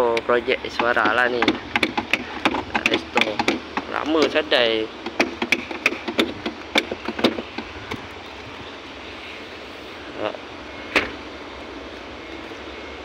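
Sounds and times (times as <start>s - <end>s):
steady background hum: 0.0s - 13.0s
car door clicks and knocks: 0.1s - 4.4s, 5.0s - 8.1s.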